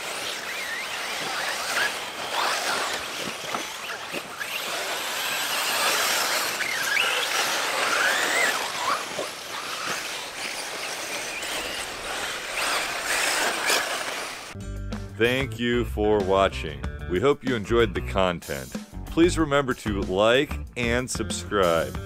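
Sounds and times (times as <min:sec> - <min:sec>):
electric motor whine: 0:00.0 - 0:14.6
tyres hissing on dirt: 0:00.0 - 0:14.6.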